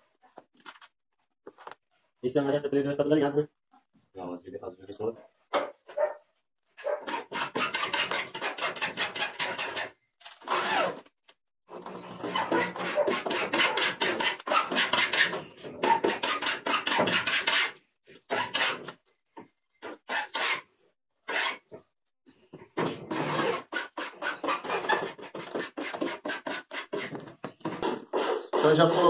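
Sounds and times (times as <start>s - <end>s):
electric drill driving screws: 7.3s - 11.1s.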